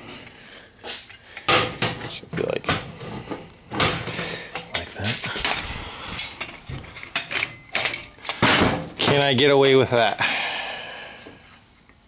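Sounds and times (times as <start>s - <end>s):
metal parts clinking on workbench: 6.2s - 10.1s.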